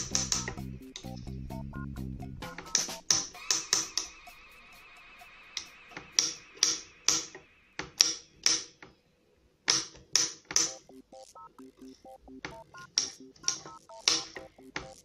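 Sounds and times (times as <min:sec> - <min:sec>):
faint plucked background music: 0:00.0 - 0:04.9, 0:10.6 - 0:15.0.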